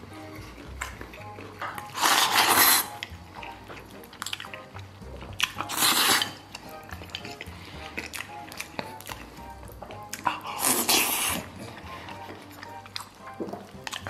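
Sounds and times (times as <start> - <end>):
person slurping noodles: 1.8 - 3.0, 5.6 - 6.5, 10.2 - 12.2.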